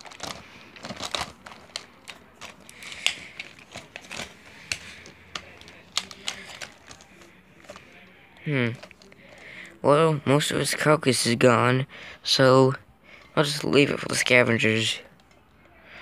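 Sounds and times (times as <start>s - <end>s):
plastic toys clicking and tapping: 0.0s - 7.8s.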